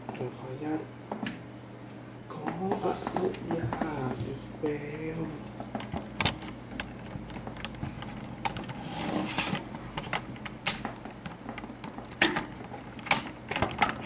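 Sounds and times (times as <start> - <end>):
steady low hum: 0.0 - 14.0
handling clicks and taps: 5.6 - 8.8.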